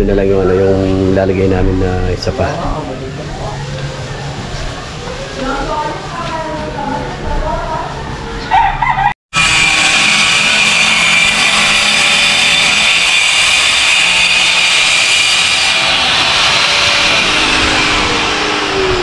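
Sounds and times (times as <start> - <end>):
angle grinder grinding metal: 9.4 - 19.0.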